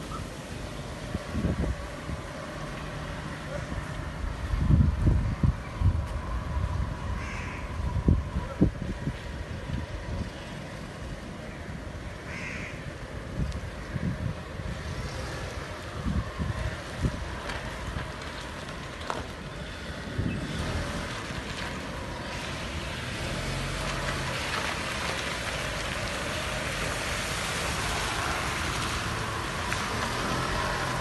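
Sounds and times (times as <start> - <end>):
tyres swishing through water: 14.8 - 31.0.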